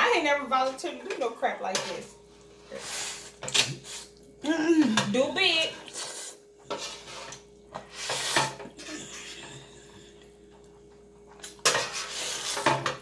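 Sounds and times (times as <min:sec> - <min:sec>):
metal spoon scraping baking sheet: 0:00.5 - 0:02.1, 0:06.0 - 0:08.7, 0:11.6 - 0:13.0.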